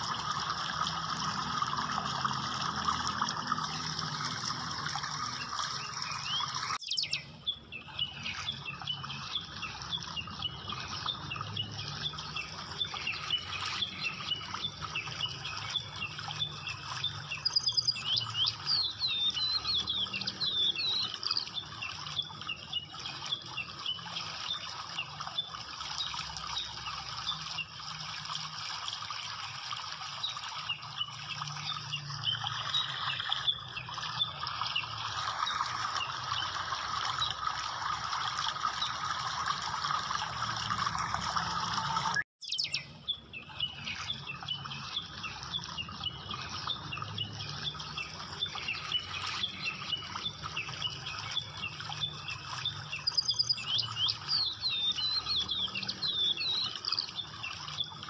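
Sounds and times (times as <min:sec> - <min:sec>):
rushing water-like background: 0:00.0 - 0:58.0
small birds chirping: 0:03.2 - 0:27.8, 0:42.1 - 0:58.0.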